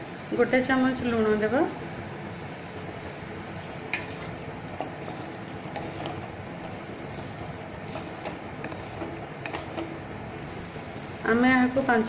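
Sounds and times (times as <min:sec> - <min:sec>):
vegetables frying in pan: 0:00.0 - 0:12.0
wooden spatula stirring: 0:03.5 - 0:11.8
spatula clicking on pan: 0:07.8 - 0:10.0.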